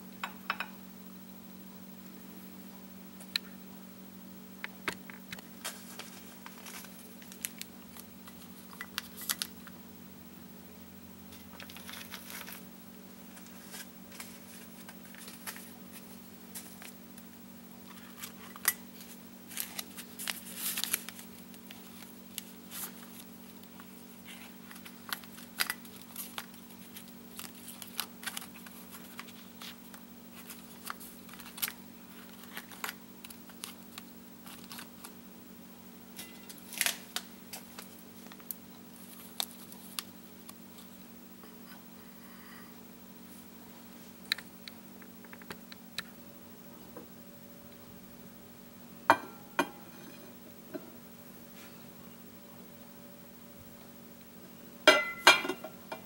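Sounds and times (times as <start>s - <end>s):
tea bags rustling and clicking: 4.8s - 9.8s, 11.3s - 35.2s, 36.2s - 41.0s.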